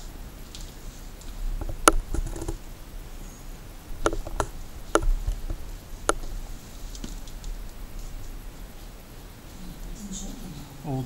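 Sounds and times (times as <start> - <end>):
sharp clicks or light knocks: 0.5 - 2.6, 4.0 - 8.4.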